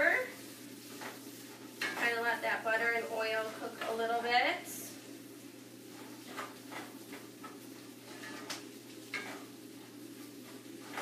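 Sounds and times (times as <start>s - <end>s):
faint sizzle of oil: 0.0s - 11.0s
utensil scraping cast iron pan: 5.9s - 9.6s.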